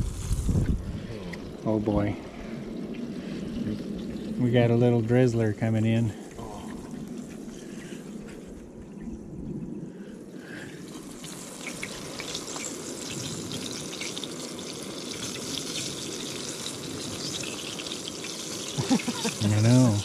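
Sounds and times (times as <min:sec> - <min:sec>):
fish frying in oil: 0:00.0 - 0:00.6, 0:10.5 - 0:20.0.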